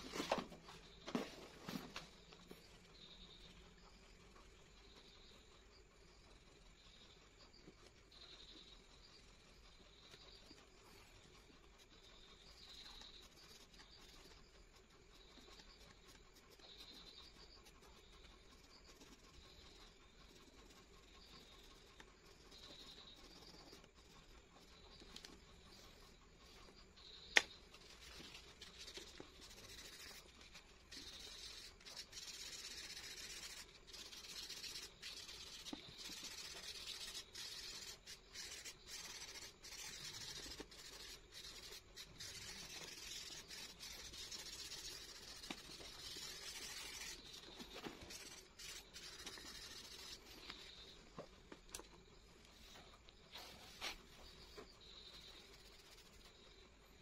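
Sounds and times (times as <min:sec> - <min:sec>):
hand rubbing on paper: 0:27.4 - 0:50.9, 0:52.5 - 0:56.4.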